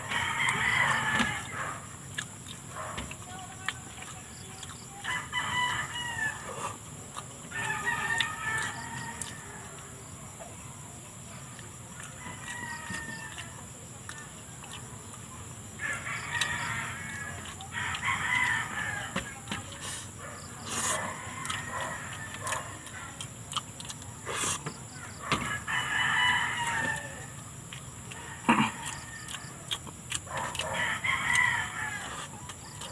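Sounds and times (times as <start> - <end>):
roosters crowing: 0.0 - 1.9, 5.0 - 6.8, 7.4 - 10.0, 12.0 - 13.6, 15.8 - 19.8, 20.4 - 23.2, 24.9 - 32.9.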